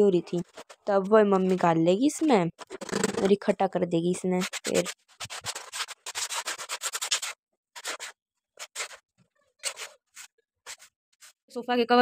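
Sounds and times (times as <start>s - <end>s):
ash and grit scraped by hand: 4.4s - 9.0s, 9.6s - 11.4s.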